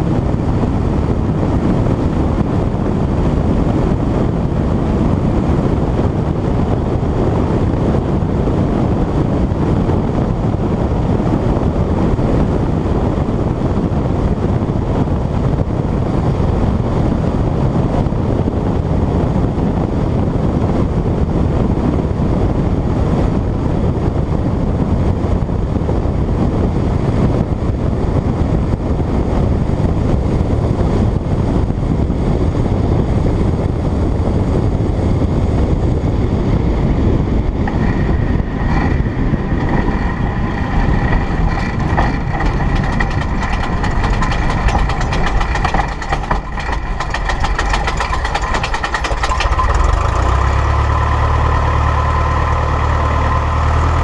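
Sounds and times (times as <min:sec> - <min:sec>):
propeller airplane engine: 0:00.0 - 0:54.0
wind rush: 0:00.0 - 0:54.0
knocks of wheels on rough grass: 0:37.7 - 0:50.1.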